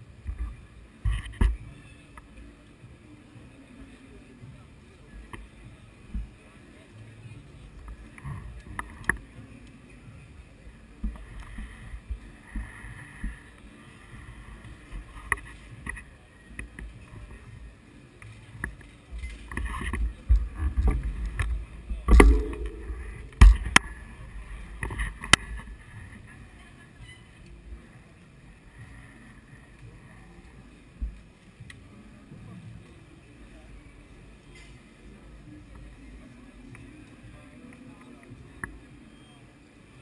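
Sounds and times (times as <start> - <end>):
faint chatter: 0.0 - 40.0
sharp knocks: 22.1 - 23.7
low rumble: 22.1 - 23.8.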